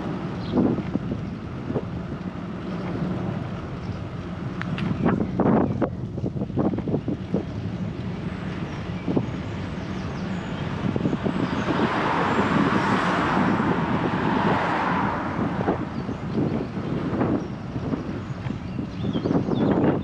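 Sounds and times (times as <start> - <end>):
steady low rumble: 0.0 - 20.0
car passing by: 10.2 - 18.0.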